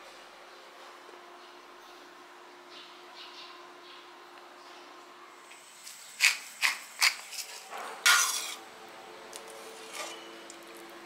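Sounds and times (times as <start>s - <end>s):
ladle scraping in pot: 6.6s - 8.6s, 9.8s - 10.3s
utensils clinking on cookware: 7.0s - 8.6s.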